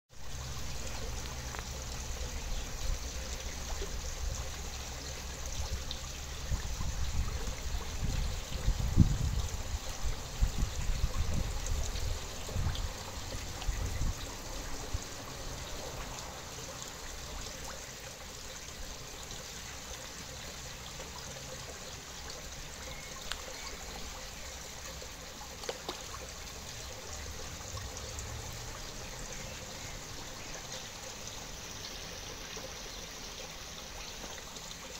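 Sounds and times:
water trickling: 0.1 - 34.9
faint ticks: 23.1 - 24.0.

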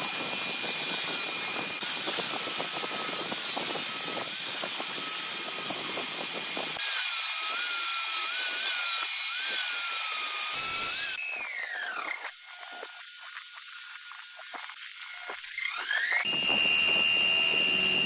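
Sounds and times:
angle grinder sanding wood: 0.0 - 18.0
motor whine winding down: 10.5 - 18.0.

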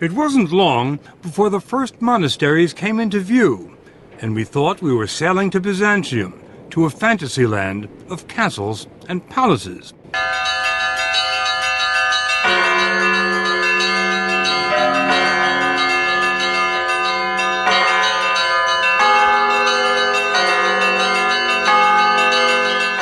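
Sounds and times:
large bells ringing: 10.1 - 23.0.

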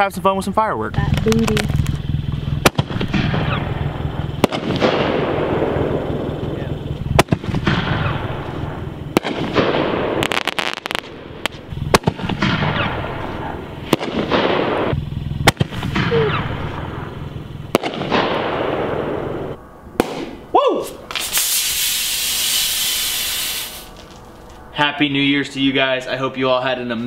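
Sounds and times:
fireworks shots: 1.0 - 24.4
fireworks hissing and crackling: 1.0 - 24.6
bottle spraying with a hiss: 21.1 - 24.1.

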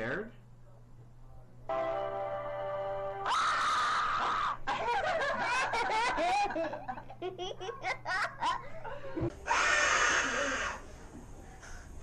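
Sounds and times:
woman laughing hard: 4.7 - 9.2.

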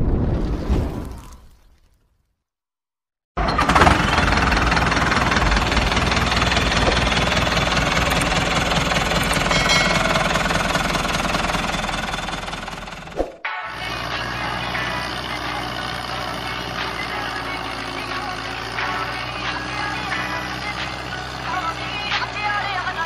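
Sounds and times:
tractor engine running: 3.4 - 23.0.

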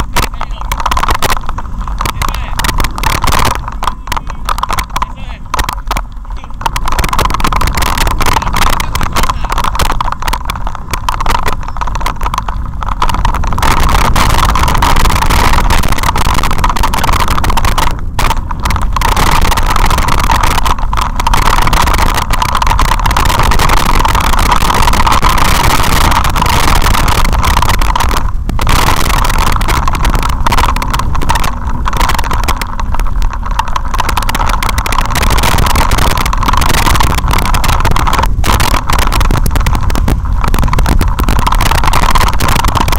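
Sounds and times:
tyres on loose gravel: 0.0 - 42.9
wind rushing: 0.0 - 42.9.

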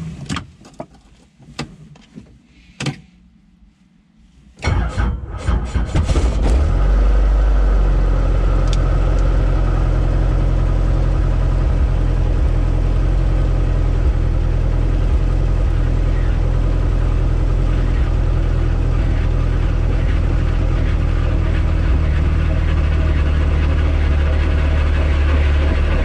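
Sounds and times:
helicopter engine starting and idling: 17.7 - 26.0.

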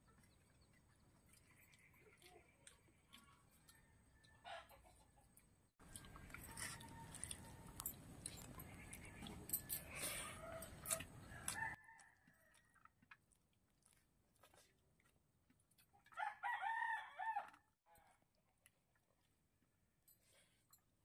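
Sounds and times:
rooster crowing: 16.2 - 17.5.

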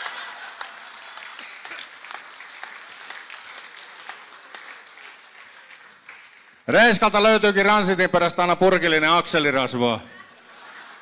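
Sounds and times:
audience laughing: 0.0 - 2.2, 10.0 - 11.0
audience applauding: 0.0 - 6.7.

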